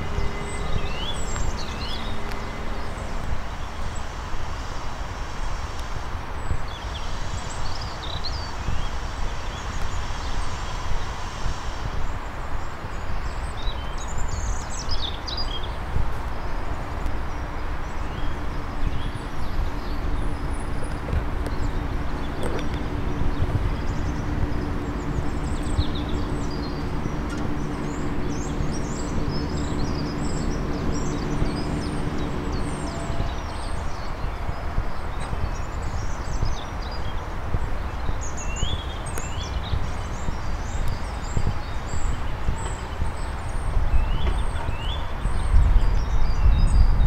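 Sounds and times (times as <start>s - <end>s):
birds chirping: 0.0s - 4.3s, 16.4s - 46.9s
low hum: 0.0s - 44.6s
low outdoor rumble: 0.0s - 47.0s.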